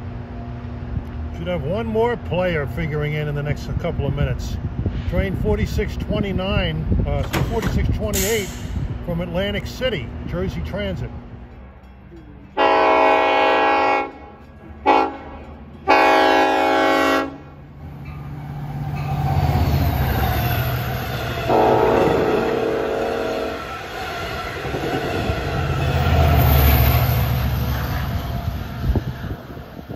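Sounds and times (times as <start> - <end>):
train rushing past: 6.8 - 29.9
train horn blasts: 12.5 - 17.6, 21.0 - 29.9.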